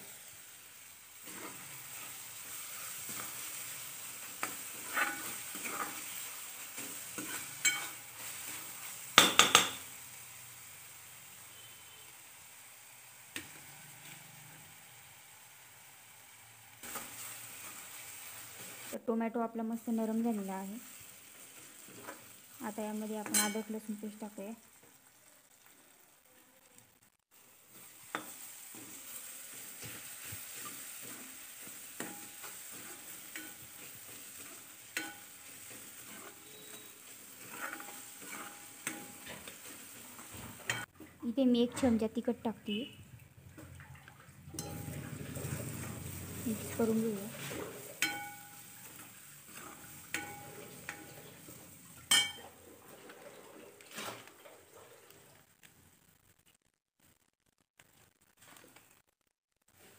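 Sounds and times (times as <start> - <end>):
food sizzling in metal pan: 0.0 - 53.2, 59.7 - 59.9
ladle scraping a metal pan: 4.4 - 6.2, 29.7 - 40.9
ladle clinking against pan: 48.0 - 48.6, 52.1 - 52.5.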